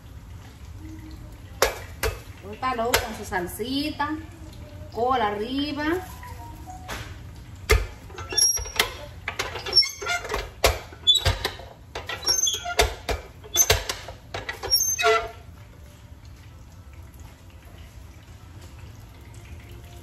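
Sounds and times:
tortilla press knocking and clacking: 6.9s - 14.7s
tortilla press squeaks: 7.7s - 15.5s.

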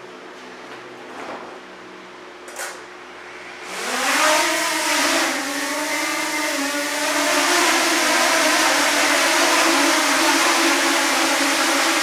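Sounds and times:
drone propellers whining: 3.6s - 12.0s.

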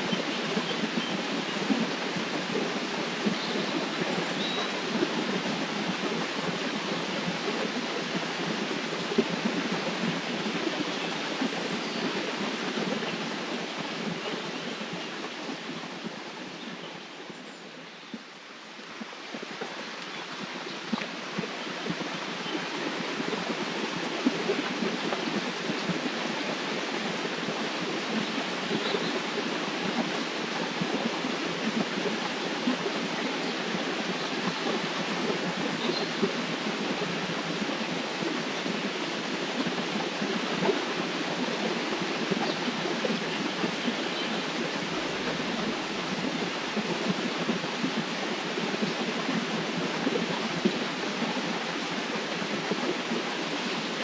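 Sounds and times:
river water rushing: 0.0s - 54.0s.

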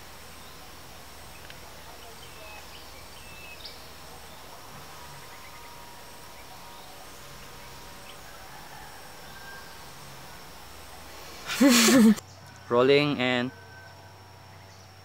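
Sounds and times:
steady outdoor hiss: 0.0s - 15.0s.

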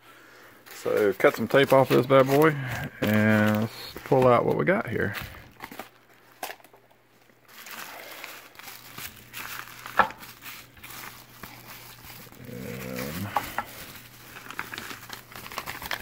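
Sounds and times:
bubble wrap crinkling: 0.4s - 16.0s
low wavering groan: 12.2s - 13.8s.

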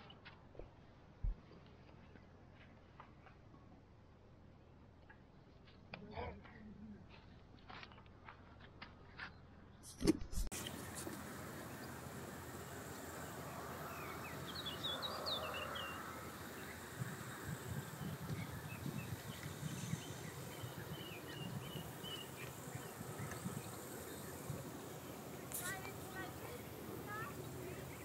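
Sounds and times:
steady hiss: 10.5s - 28.0s
small bird chirping: 10.6s - 28.0s
wind buffeting microphone: 10.6s - 28.0s.

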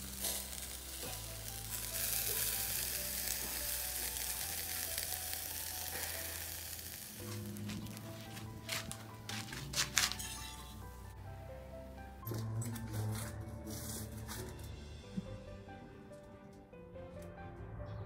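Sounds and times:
meat sizzling on a grill: 0.0s - 11.1s
soft background music: 0.0s - 18.0s.

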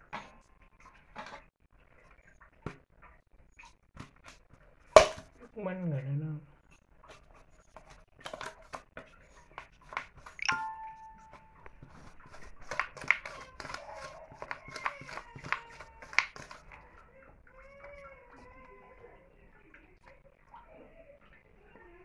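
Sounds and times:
steel tumbler knocking on plate: 5.0s - 5.3s.

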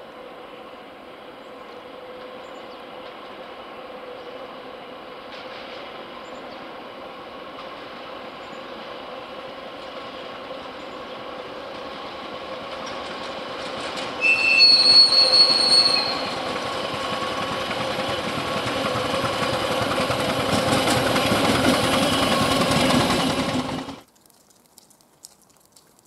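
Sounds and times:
diesel locomotive engine: 0.0s - 24.1s
wheels clattering over rail joints: 5.2s - 6.7s, 9.8s - 24.1s
loud high-pitched squeal: 14.2s - 16.6s.

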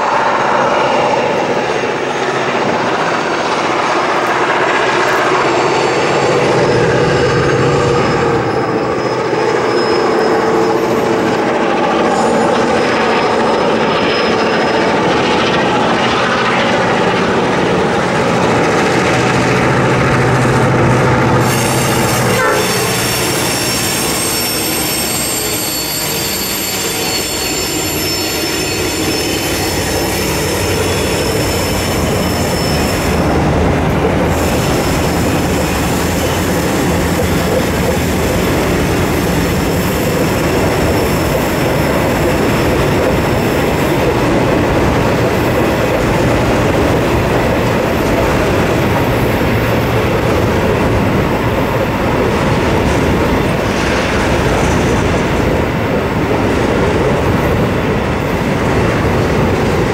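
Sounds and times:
train wheels rumbling on rail: 0.0s - 59.9s
high wheel squeal: 4.8s - 16.9s, 21.2s - 33.4s, 34.2s - 44.2s.

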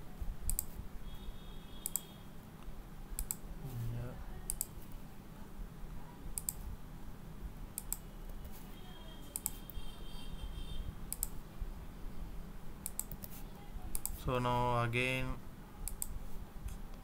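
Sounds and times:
faint low hum: 0.0s - 17.0s
mouse and keyboard clicks: 0.5s - 0.8s, 1.8s - 2.1s, 3.2s - 3.4s, 6.4s - 6.6s, 9.3s - 9.8s, 11.1s - 11.4s, 12.8s - 14.2s, 15.8s - 17.0s.

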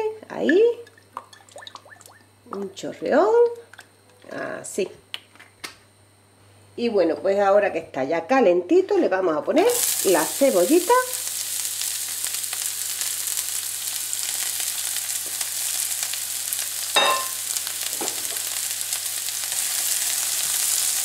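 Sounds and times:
onion sizzling in a pan: 9.6s - 21.0s.

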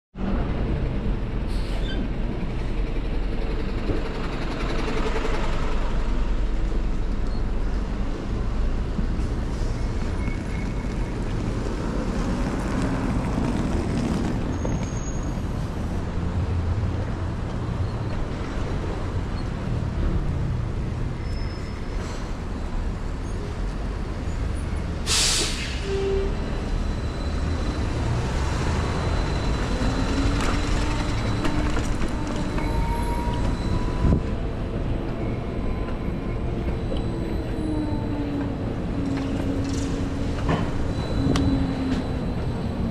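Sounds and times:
street traffic rumble: 0.2s - 42.9s
air brake hiss: 1.5s - 1.9s, 25.0s - 25.9s.

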